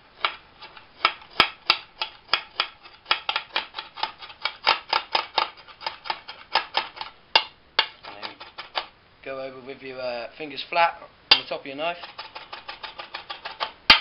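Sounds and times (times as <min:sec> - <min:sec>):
knife chopping on board: 0:01.0 - 0:08.9.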